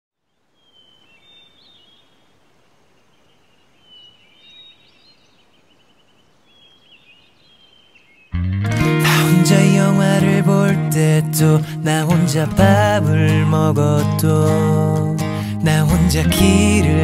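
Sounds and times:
small birds chirping: 0.2 - 8.5
soft outdoor hiss: 0.2 - 17.0
loud music: 8.4 - 13.4.

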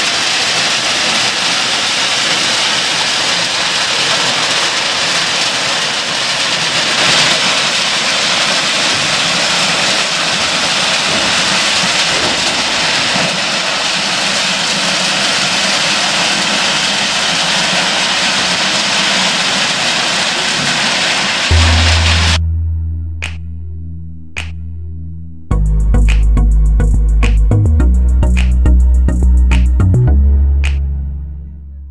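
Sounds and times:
hiss of pouring stone: 0.0 - 21.5.

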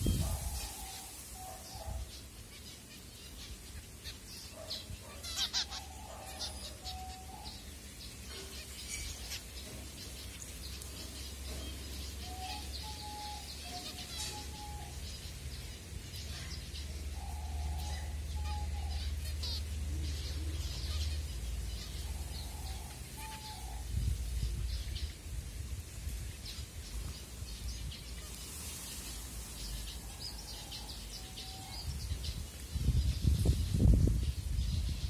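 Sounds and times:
finches chirping: 0.0 - 25.1.

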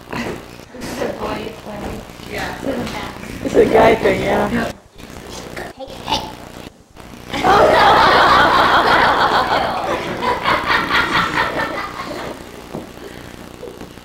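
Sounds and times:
crowd laughing loudly: 7.3 - 12.6.

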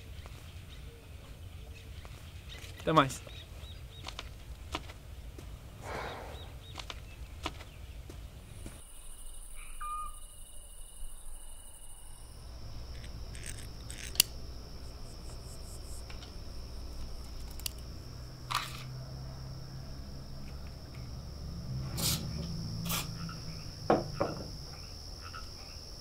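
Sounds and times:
low hum: 8.3 - 25.8
metallic gun clicks: 13.0 - 14.4.

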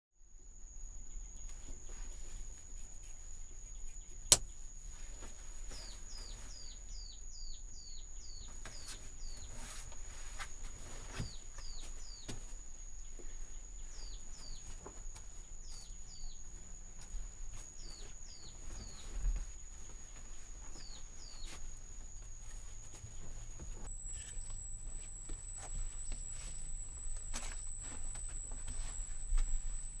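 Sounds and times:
insect drone: 0.2 - 30.0
sharp click: 4.3 - 4.5
bird chirps: 5.7 - 9.8, 20.6 - 21.6, 23.9 - 30.0
faint clicks and rustles: 8.4 - 30.0.

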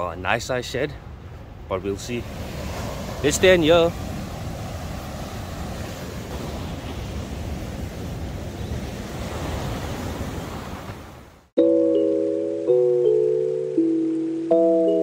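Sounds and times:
ocean surf washing up beach: 0.0 - 11.5.

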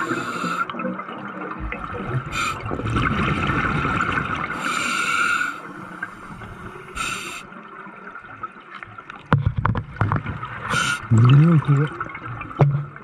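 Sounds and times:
regulator hissing inhale: 0.0 - 0.7, 2.3 - 2.7, 4.5 - 7.5
gurgling exhaled bubbles: 0.0 - 7.4, 9.9 - 13.0.

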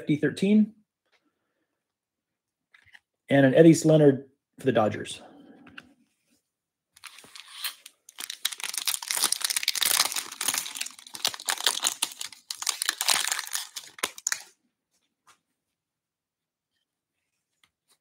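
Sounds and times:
foil wrapper crinkling and tearing: 7.0 - 14.6.

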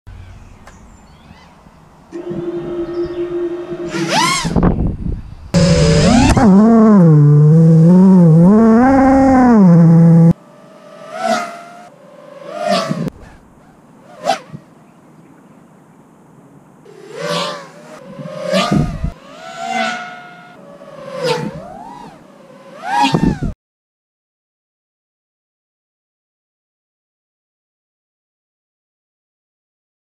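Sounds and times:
quadcopter motors whining: 2.1 - 13.4, 16.9 - 23.6.

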